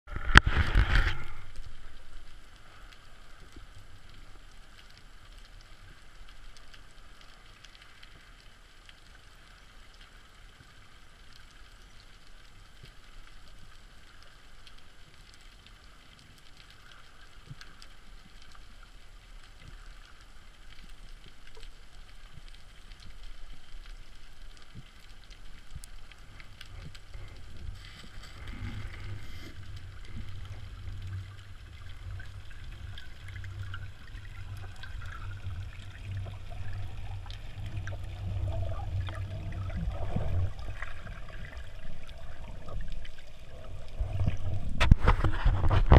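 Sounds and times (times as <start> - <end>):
underwater crackling: 0.1 - 45.9
water rushing: 25.4 - 45.9.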